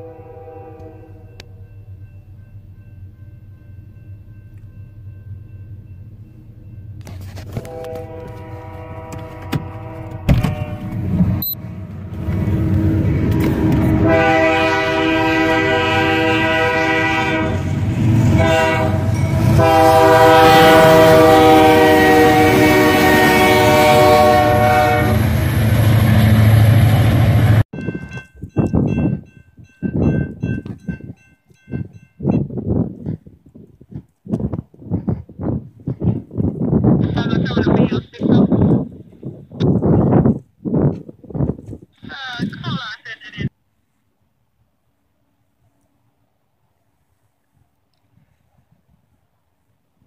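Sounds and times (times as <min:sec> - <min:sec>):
train air horn blasts: 0:00.0 - 0:01.4, 0:07.3 - 0:11.1, 0:12.5 - 0:25.4
locomotive engines rumbling: 0:00.0 - 0:31.9.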